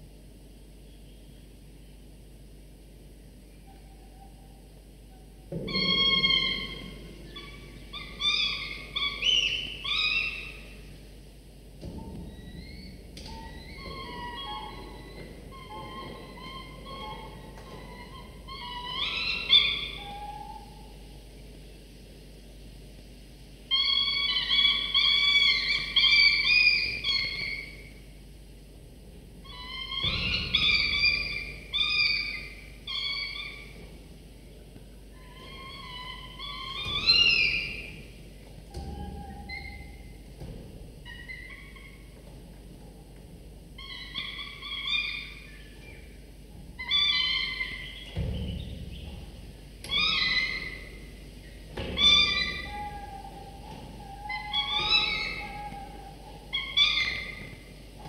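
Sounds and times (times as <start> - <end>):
falcon chicks begging calls: 5.7 - 10.8, 13.3 - 20.7, 29.5 - 33.8, 35.2 - 38.1, 43.8 - 46.2, 46.8 - 49.2, 49.8 - 57.8.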